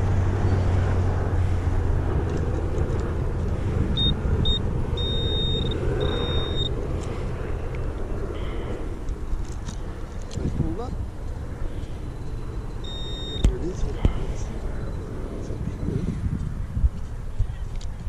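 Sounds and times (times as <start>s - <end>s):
pinpointer beeps and tones: 4.0s - 6.7s, 12.8s - 13.5s.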